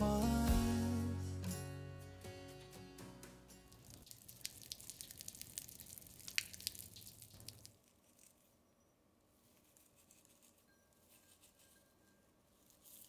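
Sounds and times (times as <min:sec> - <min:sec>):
water dripping: 0:03.7 - 0:07.9
crackle of dried herbs stripped: 0:03.7 - 0:08.6, 0:09.4 - 0:11.8, 0:12.5 - 0:13.0.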